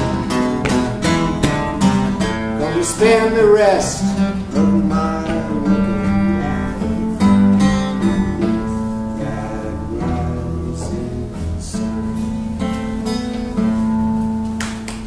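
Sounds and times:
acoustic guitar playing: 0.0 - 15.0
man singing long notes: 2.2 - 13.1.

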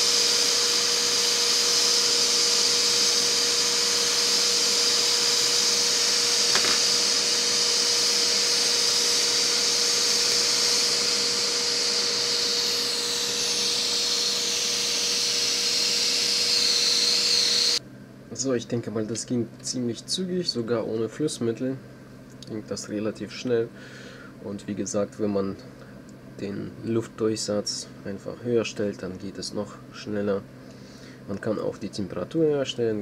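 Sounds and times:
hot air tool fan hiss: 0.0 - 17.8.

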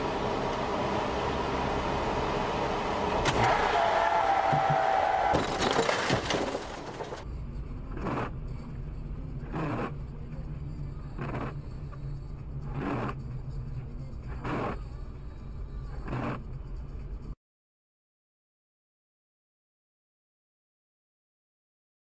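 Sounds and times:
loud rough rattling: 3.3 - 7.2.

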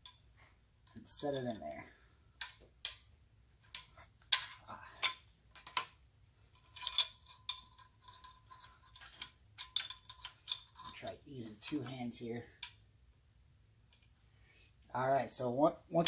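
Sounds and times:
metallic clicks and knocks: 2.4 - 12.8.

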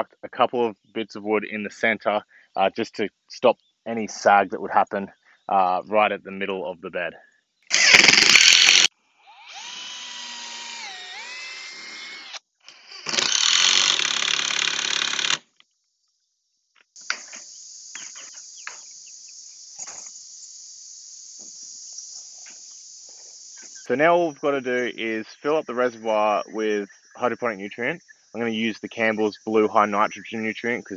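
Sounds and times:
insects droning: 0.6 - 30.9
cordless drill driving screws: 7.7 - 15.4.

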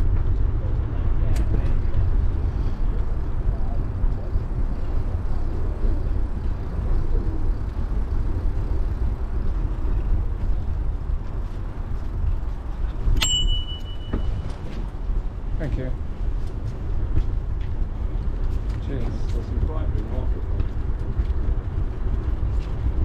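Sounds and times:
bicycle bell ringing: 13.1 - 14.6.

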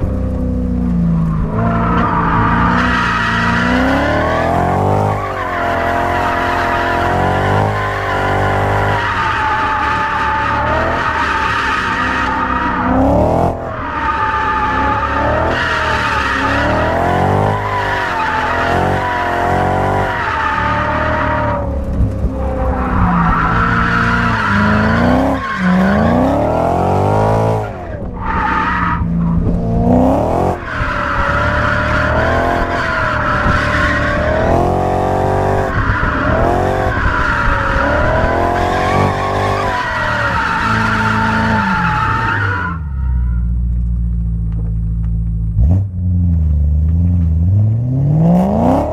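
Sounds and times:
engine revving: 0.0 - 42.5, 47.5 - 48.9.

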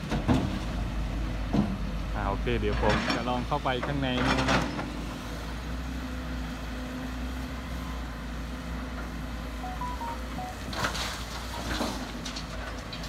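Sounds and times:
excavator diesel engines running: 0.0 - 13.0
soil pouring into truck bed: 10.7 - 13.0.

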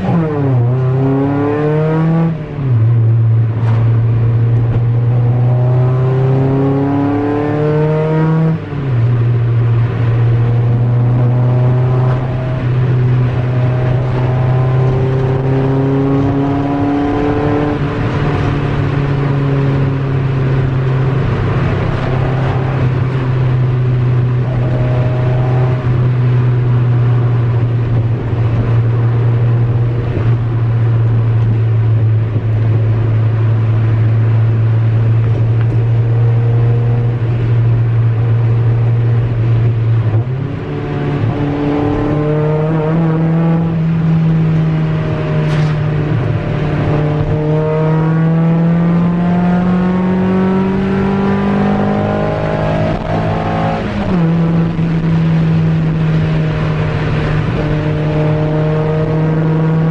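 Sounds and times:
car engine from inside cabin: 0.0 - 59.9.

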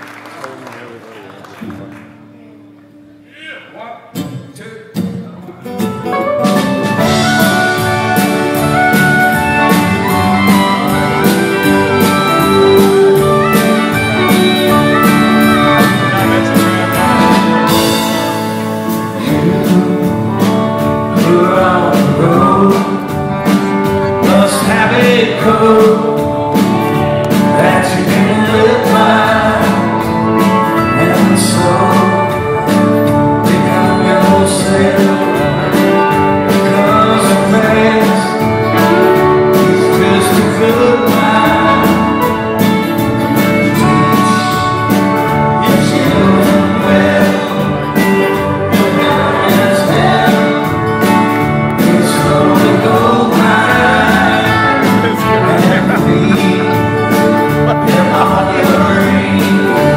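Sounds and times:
live country-rock band: 0.0 - 3.4, 4.1 - 59.9
man singing lead vocal: 15.5 - 26.7, 27.3 - 59.9.

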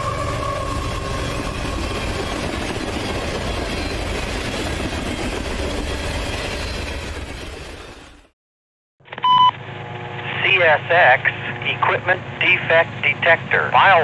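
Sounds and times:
freight train rumbling past: 0.0 - 8.3
short radio beep: 9.2 - 9.5.

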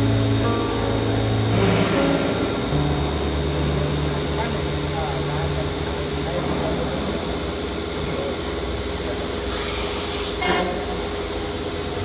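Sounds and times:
machine humming and hissing: 0.0 - 12.0
compressed air blast: 9.4 - 11.3.

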